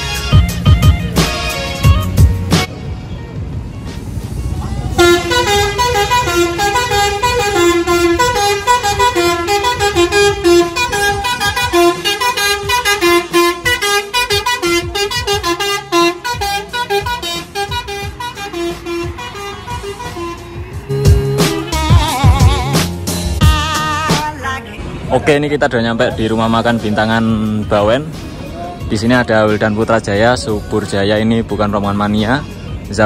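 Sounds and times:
bus horn playing melody: 0:00.0 - 0:02.7, 0:04.8 - 0:24.3.

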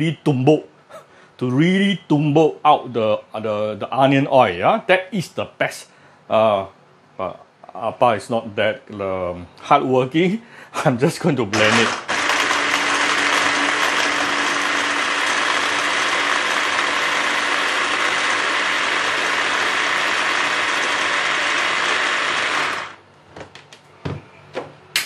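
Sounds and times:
mini chopper motor running: 0:11.6 - 0:23.0.

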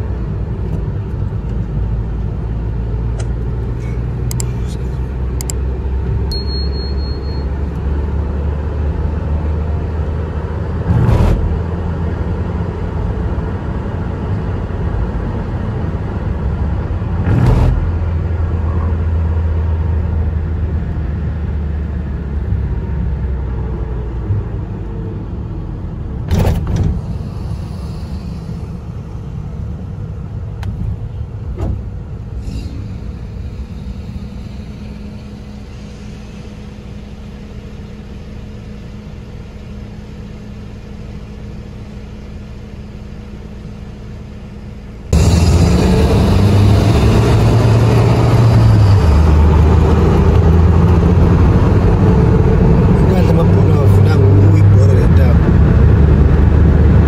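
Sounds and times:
car engine and road rumble: 0:00.0 - 0:57.0
steady low hum: 0:10.8 - 0:47.4.

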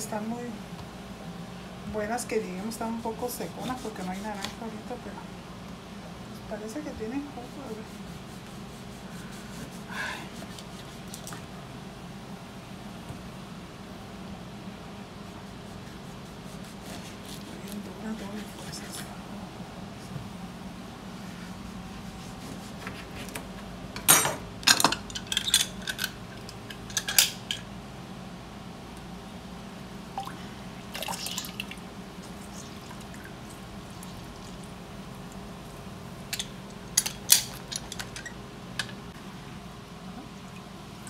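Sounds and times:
steady low hum: 0:00.0 - 0:41.0
juice dripping and trickling: 0:30.1 - 0:35.5.

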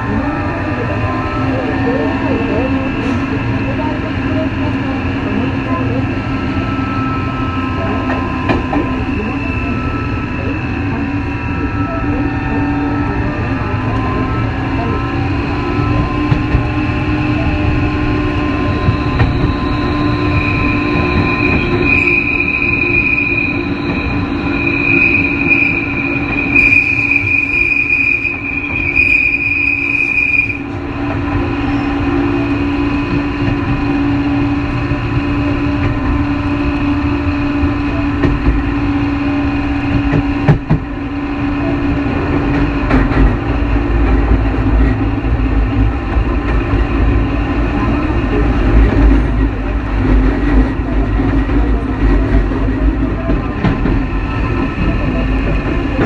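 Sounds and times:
wheel and rail rumble: 0:00.0 - 0:56.0
shrill wheel squeal: 0:18.5 - 0:30.6.

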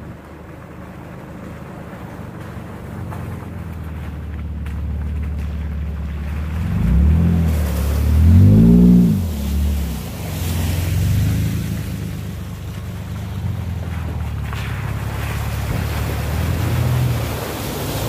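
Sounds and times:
truck engine revving: 0:03.8 - 0:18.0.

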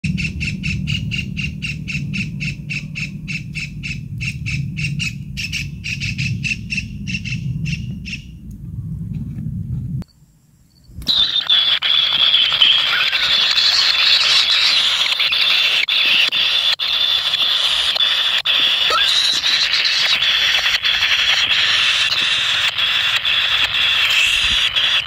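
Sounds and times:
low rumble: 0:00.0 - 0:10.0
kingfisher calls: 0:00.1 - 0:08.3, 0:11.1 - 0:25.0
nestlings begging screech: 0:11.1 - 0:25.0.

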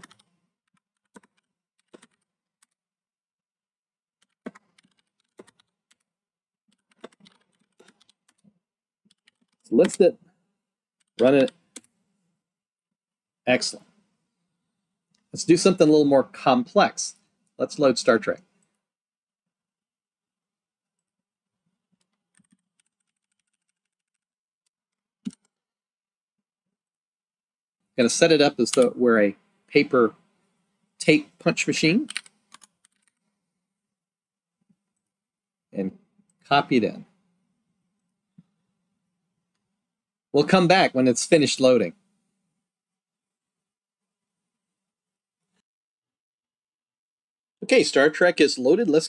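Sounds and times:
faint keyboard typing: 0:00.0 - 0:02.8, 0:04.2 - 0:06.1, 0:06.7 - 0:10.4, 0:11.0 - 0:11.9, 0:21.9 - 0:24.3, 0:24.9 - 0:25.6, 0:28.6 - 0:29.0, 0:32.0 - 0:33.3.

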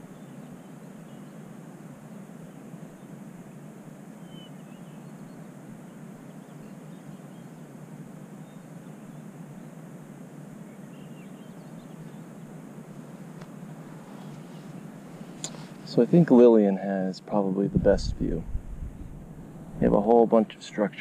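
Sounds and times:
faint bird chirps: 0:00.0 - 0:03.2, 0:04.2 - 0:07.7, 0:08.3 - 0:09.8, 0:10.6 - 0:12.6, 0:13.8 - 0:16.0
low outdoor ambience: 0:00.0 - 0:21.0.

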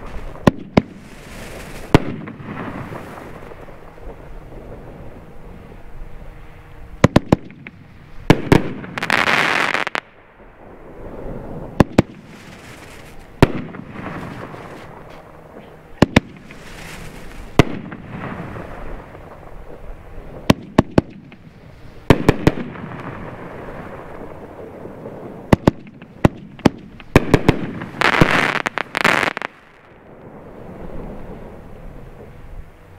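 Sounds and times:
fireworks shells firing and bursting: 0:07.0 - 0:10.0, 0:11.8 - 0:15.4, 0:16.0 - 0:19.6, 0:25.5 - 0:29.9.

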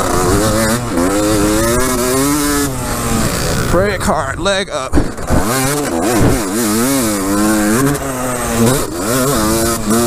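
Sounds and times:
two-stroke engine revving: 0:00.0 - 0:10.0.

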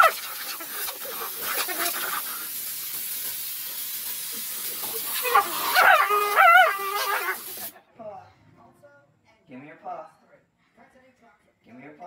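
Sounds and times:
dog yelping: 0:00.0 - 0:02.3, 0:05.0 - 0:07.6
compressed air hissing: 0:00.0 - 0:07.7.

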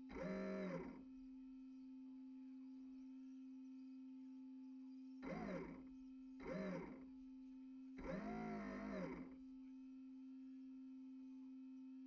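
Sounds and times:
small electric motor revving: 0:08.0 - 0:09.3.

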